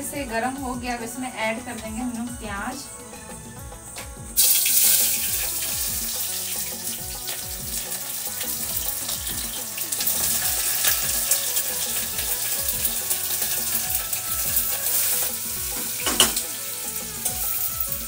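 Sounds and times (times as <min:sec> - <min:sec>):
onion sizzling in hot oil: 0:04.4 - 0:18.0.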